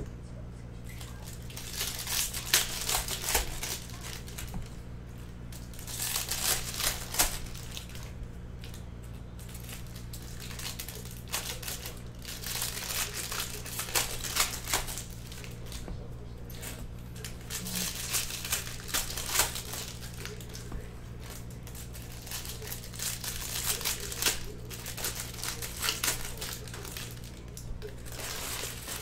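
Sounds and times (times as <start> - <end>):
steady low hum: 0.0 - 29.0
foil wrappers crinkling and tearing: 0.8 - 29.0.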